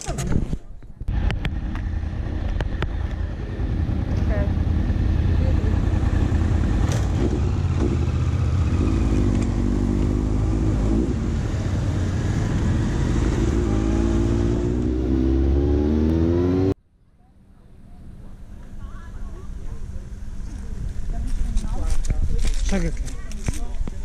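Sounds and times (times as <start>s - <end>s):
motorcycle engine accelerating: 1.1s - 16.8s.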